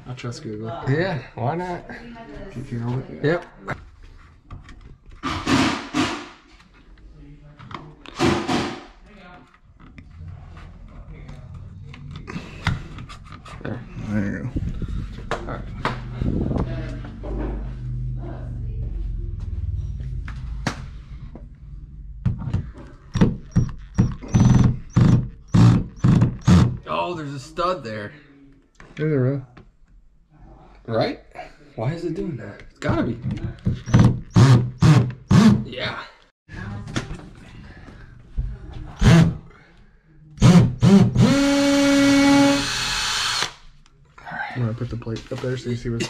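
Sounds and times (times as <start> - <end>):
cordless drill bursts: 24.3 - 26.7, 33.9 - 35.5, 40.4 - 43.6
drill click: 40.4 - 43.6.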